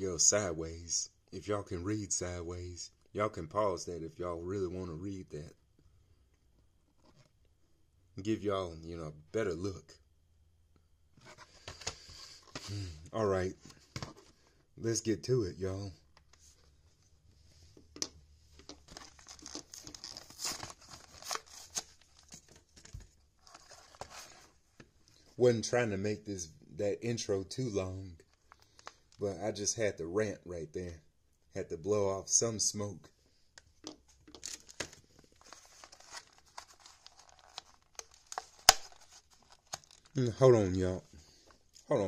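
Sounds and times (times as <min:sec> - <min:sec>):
plastic blister pack crinkling: 0:18.6 - 0:24.2, 0:33.8 - 0:40.5.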